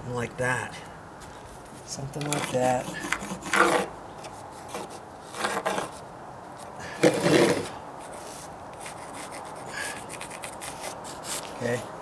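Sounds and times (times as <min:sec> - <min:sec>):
metal level scraping on wood: 0:02.2 - 0:06.0, 0:07.0 - 0:09.3
pencil marking wood: 0:02.2 - 0:06.0, 0:07.2 - 0:11.8.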